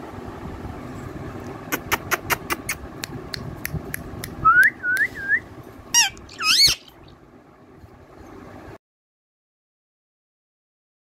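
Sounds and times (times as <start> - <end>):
parakeet wavering calls: 5.9 - 7.2
parakeet whistles: 6.0 - 7.1.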